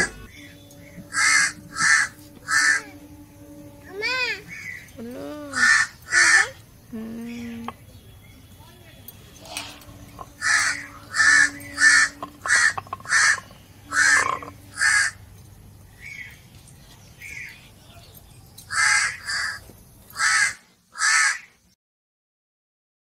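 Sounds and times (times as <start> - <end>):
crows cawing: 1.0 - 3.6, 5.5 - 6.6, 9.5 - 15.2, 18.7 - 21.5.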